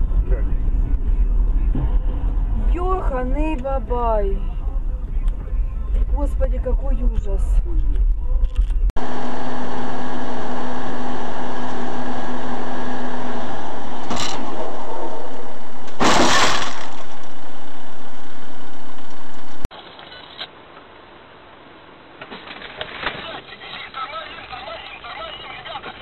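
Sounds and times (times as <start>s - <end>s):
car driving noise: 0.0s - 19.7s
car collision impact: 15.8s - 17.4s.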